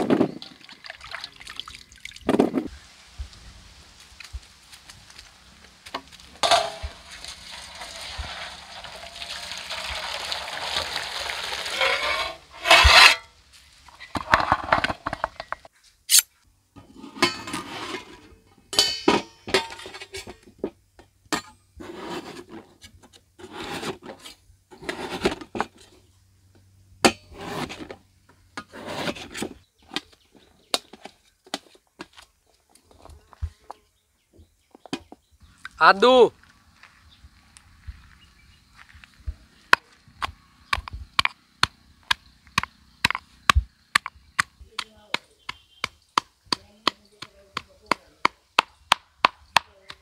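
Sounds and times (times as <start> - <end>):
loud metal pot clank: 6.4 - 7.0, 18.7 - 20.3
knives scraping steel plates: 11.7 - 13.3, 18.8 - 20.4.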